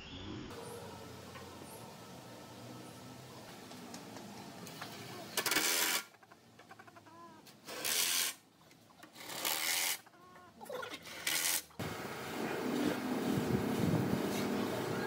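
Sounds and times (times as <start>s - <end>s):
rooster calling: 14.7s - 15.0s.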